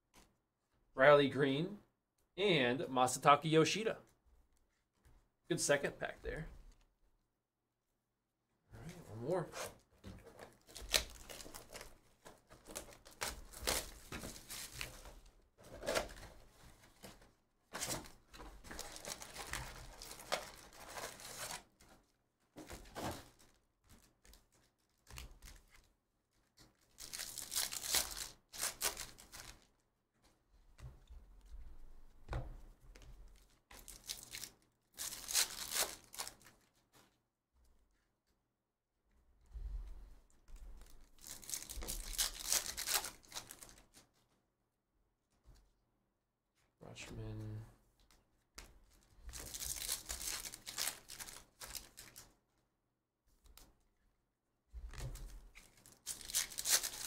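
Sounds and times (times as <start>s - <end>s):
packs torn open: 10.4s - 11.9s, 27.0s - 29.6s, 33.8s - 36.4s, 41.2s - 43.8s, 49.3s - 52.3s, 55.6s - 57.0s
wrappers crinkling: 10.5s - 16.1s, 17.8s - 21.8s, 26.8s - 29.8s, 33.3s - 37.0s, 40.8s - 44.0s, 48.9s - 52.3s, 55.4s - 57.0s.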